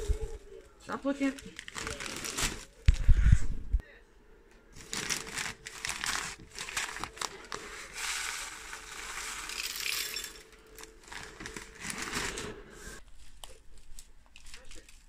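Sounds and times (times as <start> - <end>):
bag and paper crinkling: 0.0 - 3.1, 4.8 - 15.0
seed hissing into bottle: 7.8 - 10.3.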